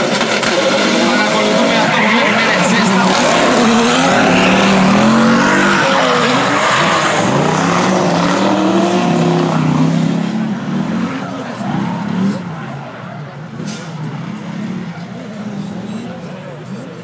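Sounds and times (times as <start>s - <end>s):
car engines revving: 0.0s - 17.0s
tyres squealing: 0.4s - 9.8s.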